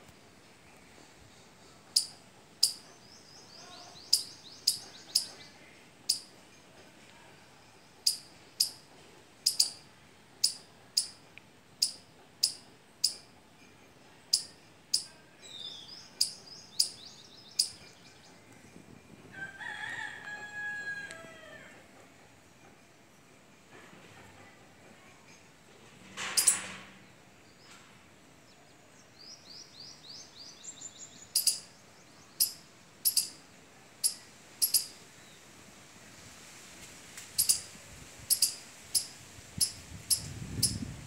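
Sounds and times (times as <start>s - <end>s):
squirrel chirping: 2.0s - 2.9s, 4.1s - 5.4s, 6.1s - 6.3s, 8.0s - 8.8s, 9.4s - 9.8s, 10.4s - 11.2s, 11.8s - 13.3s, 14.3s - 15.1s, 16.2s - 17.0s, 17.6s - 17.8s, 26.4s - 26.6s, 31.3s - 31.7s, 32.4s - 33.4s, 34.0s - 35.0s, 37.4s - 37.7s, 38.3s - 40.8s.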